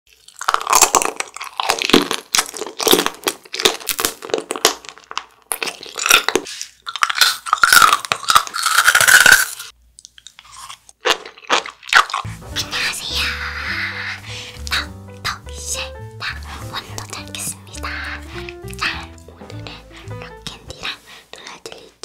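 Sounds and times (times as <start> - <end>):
crunching candy bites: 0.1 - 12.3.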